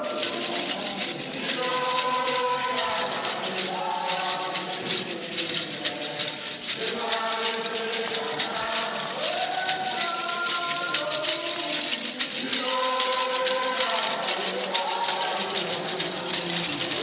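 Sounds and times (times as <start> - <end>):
rattle shaken rhythmically: 0.0 - 17.0
voices singing in parts: 0.0 - 17.0.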